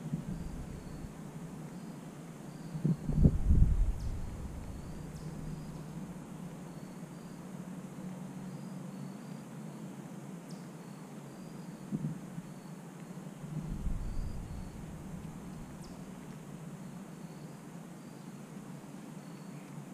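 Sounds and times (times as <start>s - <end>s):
insects chirping: 0.0s - 7.7s, 8.4s - 9.5s, 10.5s - 18.5s
steady low hum: 0.0s - 9.4s, 11.4s - 17.7s
brief low rumble: 13.5s - 16.2s.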